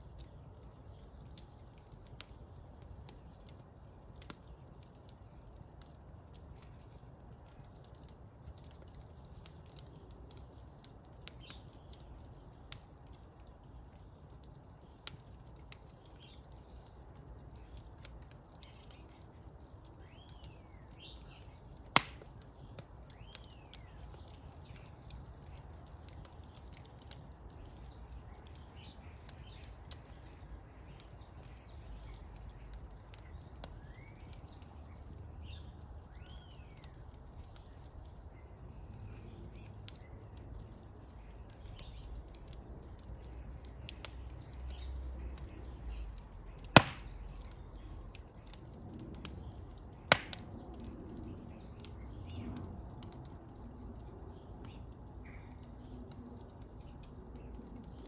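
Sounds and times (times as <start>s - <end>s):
fire crackling: 0.0s - 58.0s
loud sharp pops of fire: 20.0s - 37.8s, 39.0s - 53.1s.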